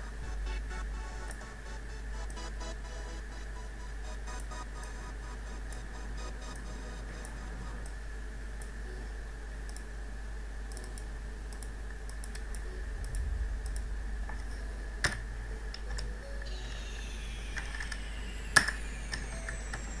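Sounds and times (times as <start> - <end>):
steady low hum: 0.0 - 20.0
computer keyboard and mouse clicks: 9.7 - 9.9, 10.7 - 16.1.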